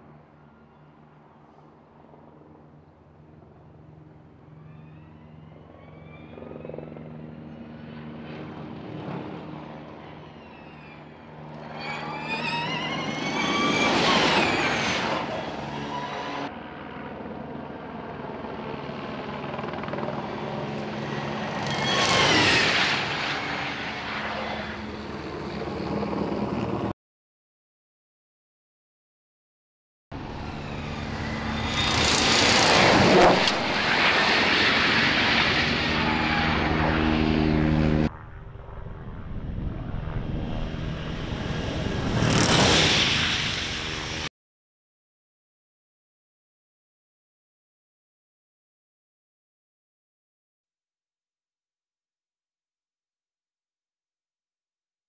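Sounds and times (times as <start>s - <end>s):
race car passing with high whine: 7.9s - 16.5s, 20.4s - 25.3s, 30.2s - 44.3s.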